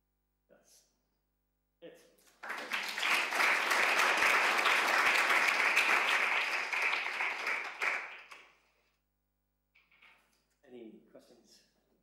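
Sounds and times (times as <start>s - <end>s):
audience applause: 2.3s - 8.5s.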